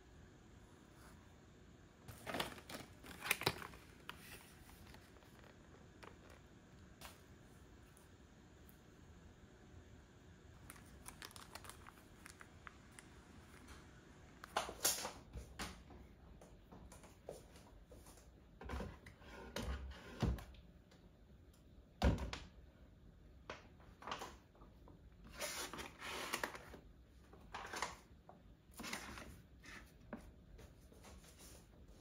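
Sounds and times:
packs rustling: 0:02.1 - 0:06.4.

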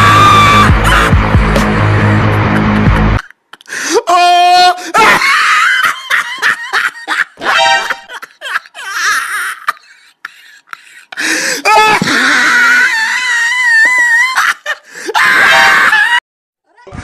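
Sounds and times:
high-pitched wavering wail: 0:07.4 - 0:08.1.

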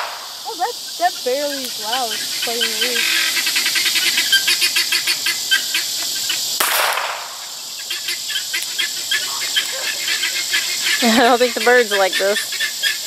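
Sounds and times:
gunshot with echo: 0:00.0 - 0:00.4, 0:06.6 - 0:07.5
rapid regular chirping: 0:00.0 - 0:13.0.

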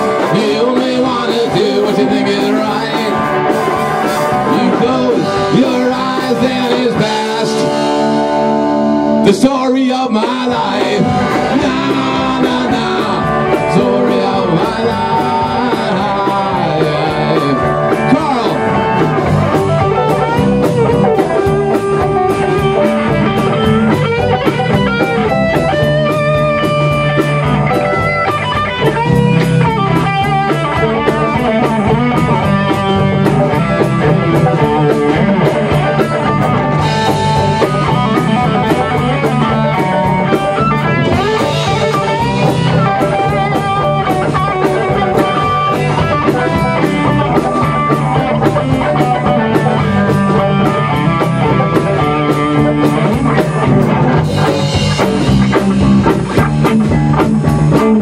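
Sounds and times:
instrumental rock band playing: 0:00.0 - 0:58.0.

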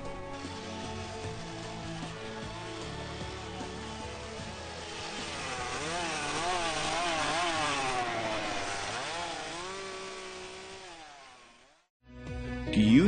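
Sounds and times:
chainsaw revving cutting wood: 0:00.0 - 0:11.9.

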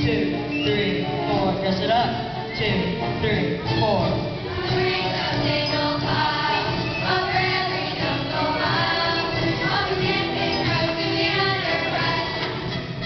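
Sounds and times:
musical accompaniment: 0:00.0 - 0:13.0
group singing marching song: 0:04.5 - 0:13.0.

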